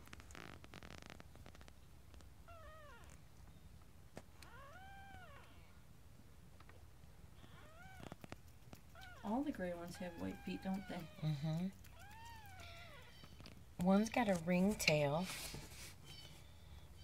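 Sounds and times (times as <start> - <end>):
kittens mewing: 4.4 - 5.8, 7.4 - 13.6.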